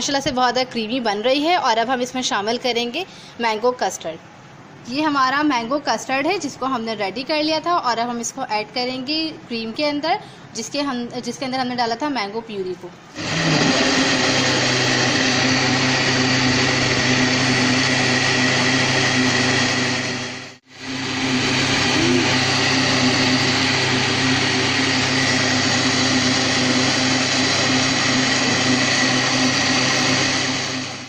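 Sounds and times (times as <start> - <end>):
blender motor running: 13.2 - 31.0.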